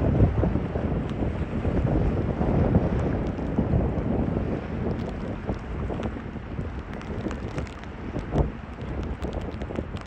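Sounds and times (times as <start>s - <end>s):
water churning along hull: 0.0s - 10.0s
wind buffeting microphone: 0.0s - 10.0s.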